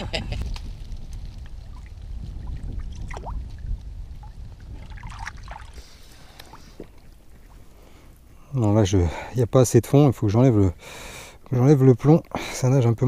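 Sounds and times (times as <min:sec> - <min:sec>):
wind rumble on microphone: 0:00.0 - 0:08.3
water sloshing and trickling: 0:01.6 - 0:07.8.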